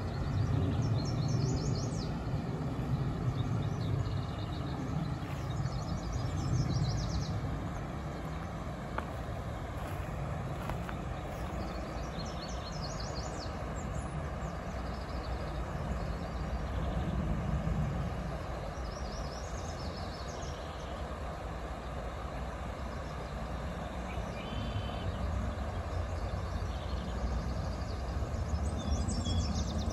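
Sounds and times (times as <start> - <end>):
river rushing over rocks: 7.4 - 16.1
small birds chirping: 8.2 - 17.2.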